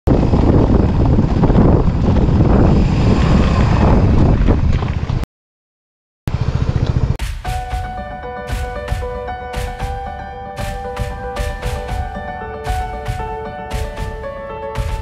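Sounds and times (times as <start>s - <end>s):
wind buffeting microphone: 0.1s - 5.2s.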